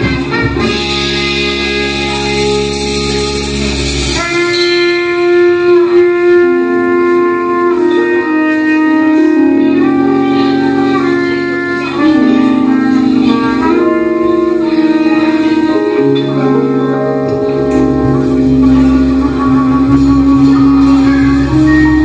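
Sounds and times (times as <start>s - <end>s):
low bass: 0.0s - 22.0s
trumpet and saxophone long notes: 0.0s - 22.0s
cymbal wash: 1.0s - 6.6s.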